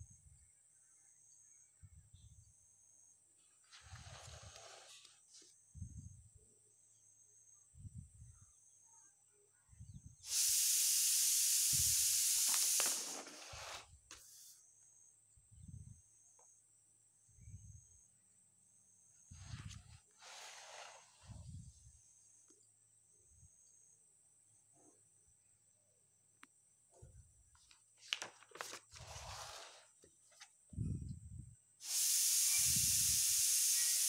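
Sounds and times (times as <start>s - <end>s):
loud steady hiss: 10.2s - 14.6s, 20.2s - 21.3s, 31.8s - 34.0s.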